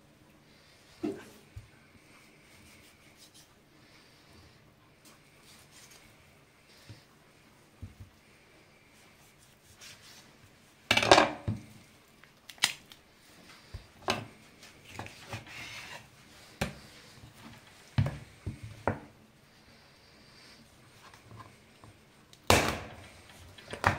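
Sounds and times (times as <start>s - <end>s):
knife scraping while cutting: 14.9s - 16.1s.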